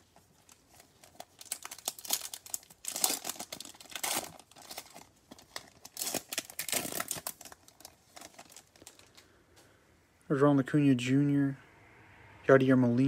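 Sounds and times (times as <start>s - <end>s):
wrapper tearing and crinkling: 0.0s - 9.2s.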